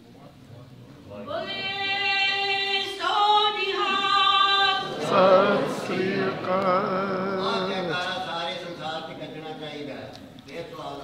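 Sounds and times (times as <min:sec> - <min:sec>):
group singing a devotional hymn: 0:01.3 - 0:09.0.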